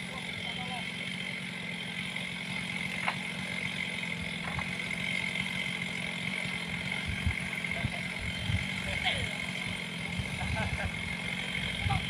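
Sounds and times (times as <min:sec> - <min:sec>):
engine idling with whine: 0:00.0 - 0:12.0.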